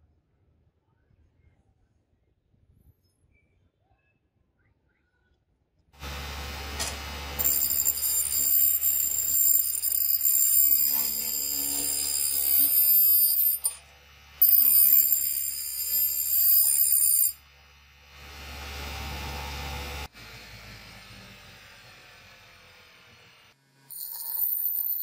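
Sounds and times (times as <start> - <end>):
bench grinder screeching on steel: 6.8 - 17.5, 23.9 - 25.0.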